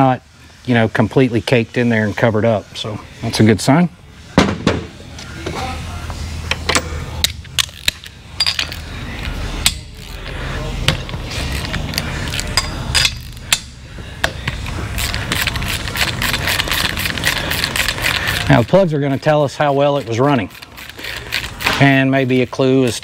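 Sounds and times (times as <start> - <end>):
metal tools clinking: 7.6 - 8.9, 11.5 - 13.4
hand ratchet clicking: 15.0 - 23.0.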